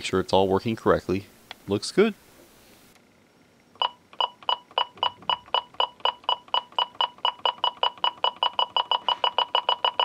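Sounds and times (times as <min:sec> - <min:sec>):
telephone short beeps: 0:03.8 - 0:10.0.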